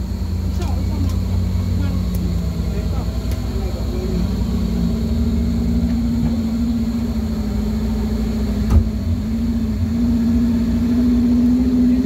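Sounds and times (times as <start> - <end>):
engine idling inside cab: 0.0 - 12.0
sharp thump: 8.6 - 9.1.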